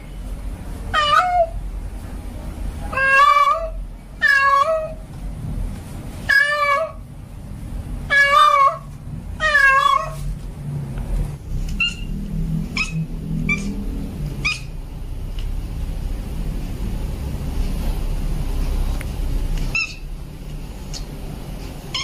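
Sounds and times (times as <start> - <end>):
cat yowling: 0.9 - 1.6, 2.9 - 5.0, 6.3 - 7.0, 8.1 - 10.2, 11.7 - 12.1, 12.7 - 13.8, 14.4 - 14.8, 19.7 - 20.1
steady low hum: 7.0 - 22.0.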